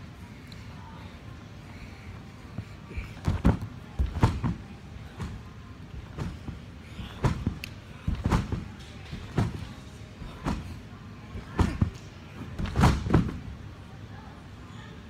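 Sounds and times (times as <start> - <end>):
feet thudding on tumble track: 3.2 - 10.8, 11.4 - 13.5.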